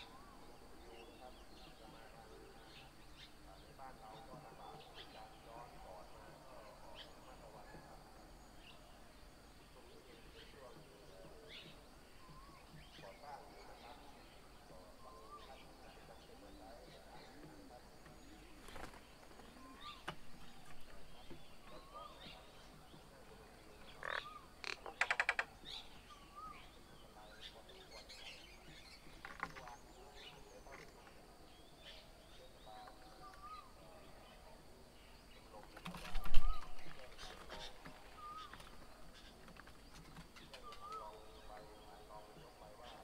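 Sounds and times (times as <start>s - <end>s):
bird chirps and calls: 0.0s - 43.0s
bird wing beats: 18.5s - 20.7s, 35.8s - 38.8s
rapid chattering bird call: 21.5s - 26.7s.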